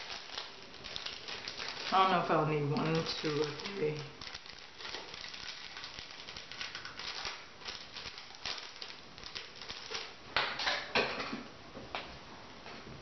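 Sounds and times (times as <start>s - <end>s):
hair crackling rustle: 0.0s - 10.2s.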